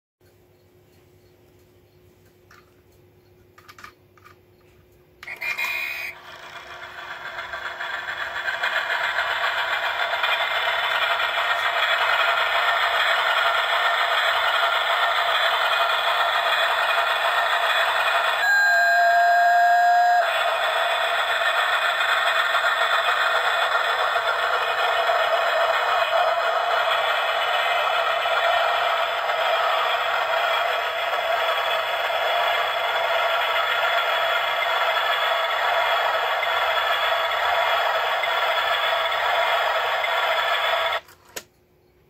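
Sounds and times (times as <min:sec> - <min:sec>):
toy clock clicks: 0:03.6 - 0:04.4, 0:05.2 - 0:18.6
train whistle: 0:05.2 - 0:06.2, 0:17.8 - 0:20.8
steam train sound effect: 0:05.2 - 0:41.0.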